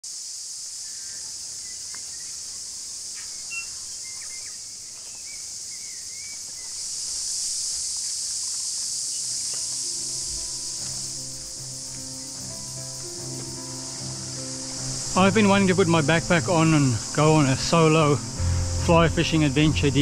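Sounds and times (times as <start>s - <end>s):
cicada chorus: 0.0s - 20.0s
short bird chirps: 3.2s - 6.8s.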